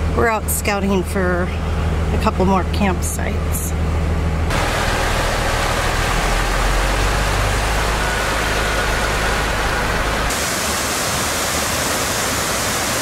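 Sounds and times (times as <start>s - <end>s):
diesel pickup engine rumble: 0.0s - 10.6s
waterfall pouring over rock: 4.5s - 13.0s.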